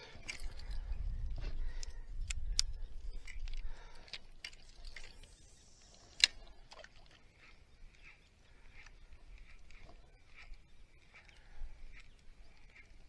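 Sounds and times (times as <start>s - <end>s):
fishing tackle clicking and rattling: 0.1s - 7.2s.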